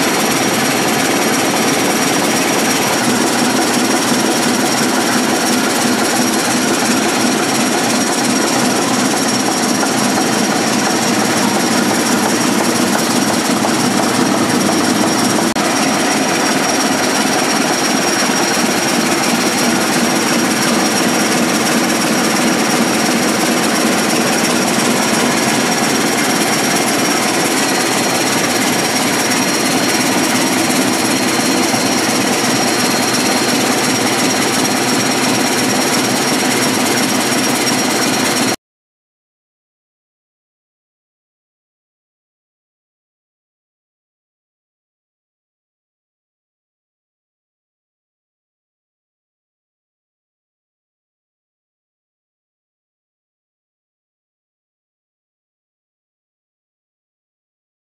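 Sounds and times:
ship engine running: 0.0 - 38.6.

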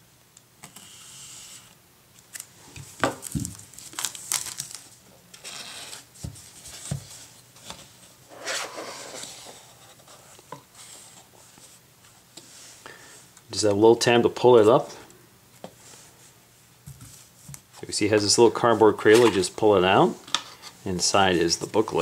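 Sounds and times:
cardboard scraping and rubbing: 5.4 - 11.6.

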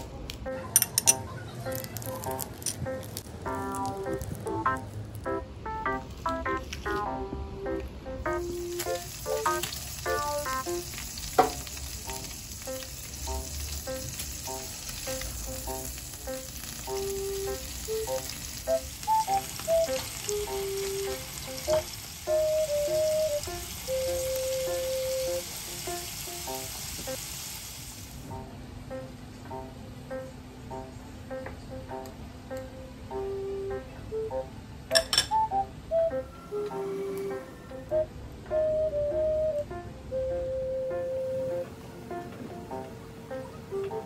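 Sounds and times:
background music with melody: 0.4 - 27.1, 28.2 - 44.0
meat sizzling on a grill: 1.7 - 5.4, 8.3 - 28.4.

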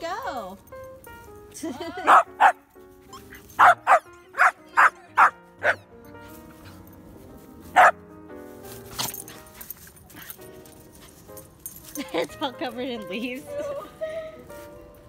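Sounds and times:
puppy yapping: 2.1 - 5.9.

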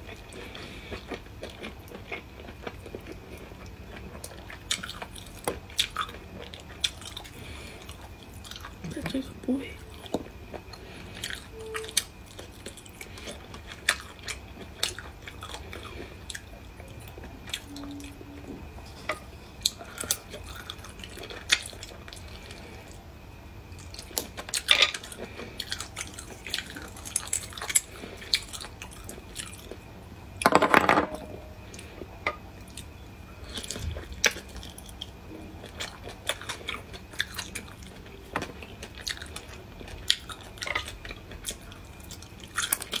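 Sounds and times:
close chewing: 0.0 - 9.3, 23.8 - 29.8, 32.6 - 43.0.

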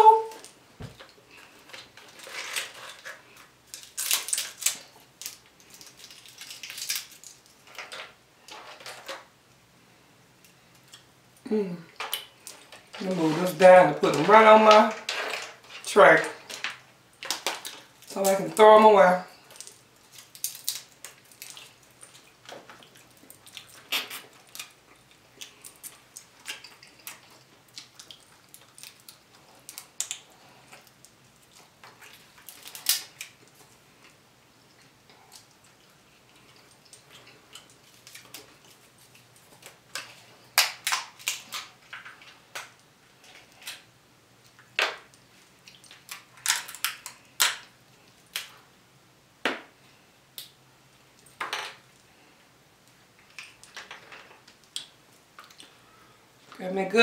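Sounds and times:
crab shell cracking: 1.7 - 7.8, 19.5 - 34.2, 36.4 - 43.8, 44.5 - 48.5.

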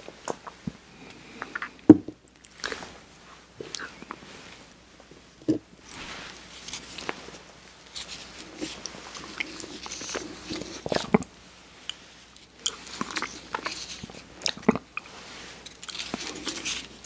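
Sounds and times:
licking and smacking eating sounds: 7.9 - 17.0.

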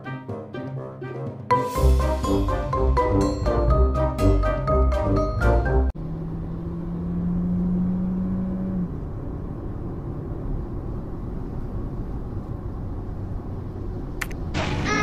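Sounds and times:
car engine rumbling: 4.9 - 15.0.

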